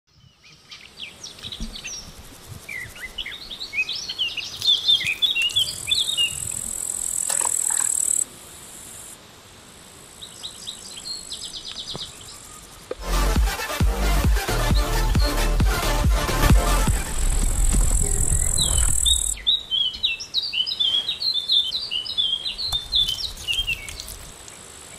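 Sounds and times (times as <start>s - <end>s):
birds chirping and twittering: 0.1s - 8.3s, 10.2s - 13.0s, 16.9s - 24.7s
high insect buzz: 1.4s - 19.5s, 22.7s - 24.9s.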